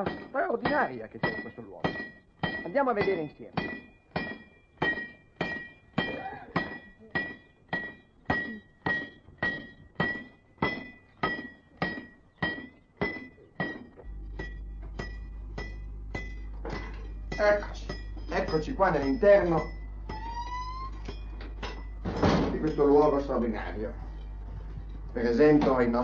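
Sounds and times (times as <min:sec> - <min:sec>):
low steady hum: 0:00.0 - 0:26.0
sharp ringing metallic strikes: 0:00.0 - 0:26.0.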